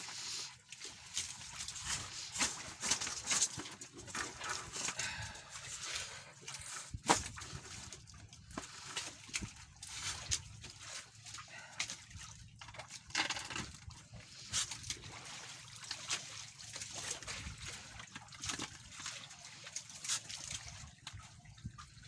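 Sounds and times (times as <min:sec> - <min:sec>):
wet fishing net pulled by hand: 0:00.0 - 0:21.4
water sloshing and dripping: 0:00.0 - 0:22.0.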